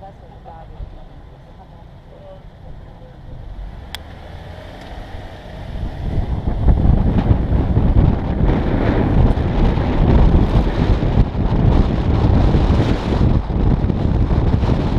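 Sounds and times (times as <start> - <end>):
wind rushing over microphone: 3.3 - 14.9.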